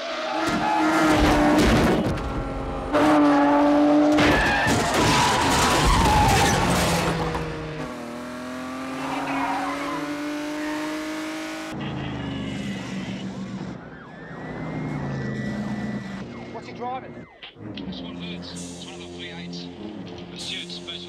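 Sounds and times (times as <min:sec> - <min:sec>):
car engines revving high: 0:00.0 - 0:21.0
car engine accelerating: 0:00.1 - 0:16.5
tyres squealing: 0:09.0 - 0:10.7.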